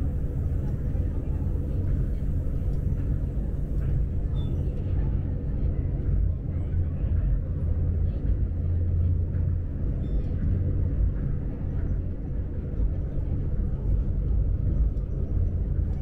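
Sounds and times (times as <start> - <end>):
faint steady hum: 0.0 - 6.9
low train rumble: 0.0 - 16.0.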